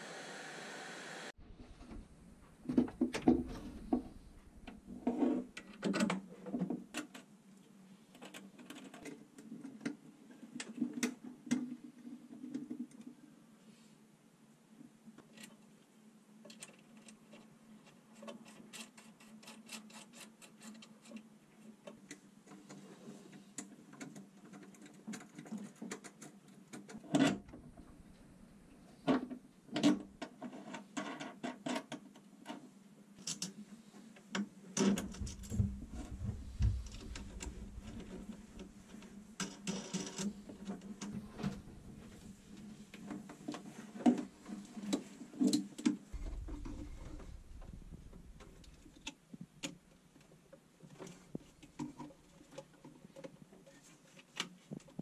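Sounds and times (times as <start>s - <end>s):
low rumble: 1.4s - 5.0s, 27.4s - 28.9s, 34.9s - 39.3s, 40.3s - 42.8s, 46.2s - 49.1s
steady low hum: 27.4s - 29.1s, 34.9s - 39.4s, 40.2s - 43.1s, 46.1s - 49.1s.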